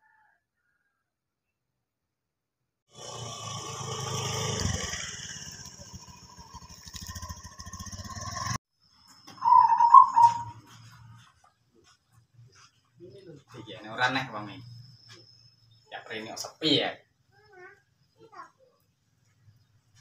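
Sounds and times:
motor scooter engine running: 0:02.9 - 0:08.6.

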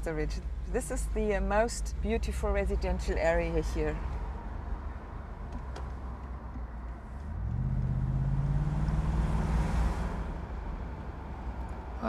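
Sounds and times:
road and tyre rumble: 0:00.0 - 0:12.0
car engine accelerating: 0:05.8 - 0:12.0.

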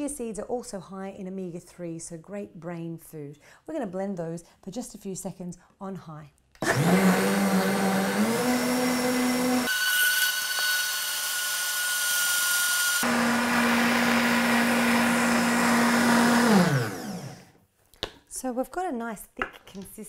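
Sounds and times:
blender motor running: 0:06.6 - 0:17.6.

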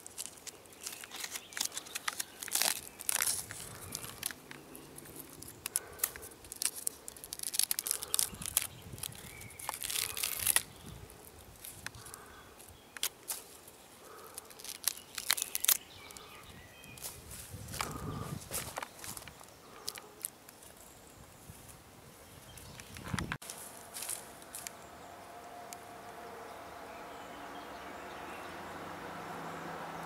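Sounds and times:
fingers scratching tree bark: 0:00.0 - 0:16.3, 0:17.0 - 0:20.4.

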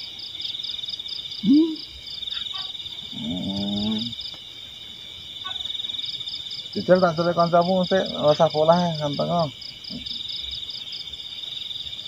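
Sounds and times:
fast pulsed insect chirp: 0:00.0 - 0:12.0
night insects trilling: 0:00.0 - 0:12.0
person's wordless vocal sound: 0:01.4 - 0:01.9, 0:03.1 - 0:04.2.

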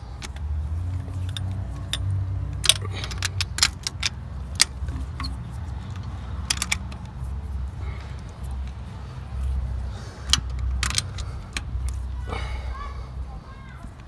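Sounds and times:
steady low rumble: 0:00.0 - 0:14.0
socket wrench metallic clicks: 0:01.0 - 0:07.2, 0:10.2 - 0:12.0.

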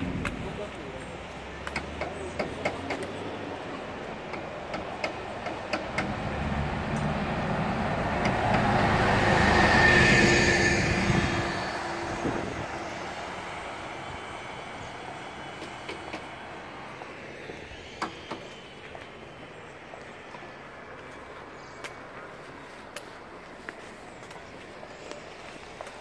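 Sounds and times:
bus driving past: 0:03.1 - 0:22.2
high whine: 0:06.9 - 0:13.4.

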